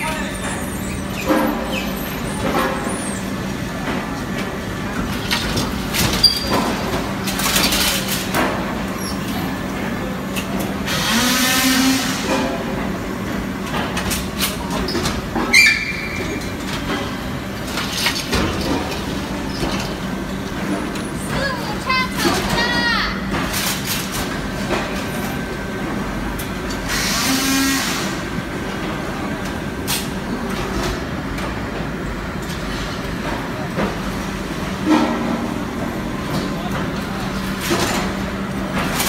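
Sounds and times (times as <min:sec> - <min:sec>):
machine clanks and knocks: 0:12.3 - 0:25.1, 0:34.9 - 0:39.0.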